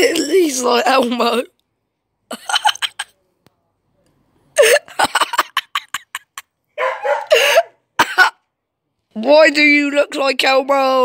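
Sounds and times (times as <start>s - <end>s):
person laughing breathily: 7.2s - 7.8s.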